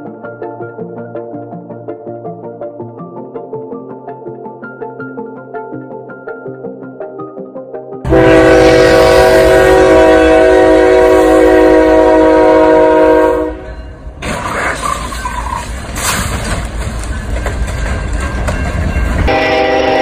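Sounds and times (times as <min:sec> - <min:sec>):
locomotive air horn: 0:08.0 - 0:13.7, 0:19.3 - 0:20.0
train rumble and wheel clatter: 0:08.1 - 0:20.0.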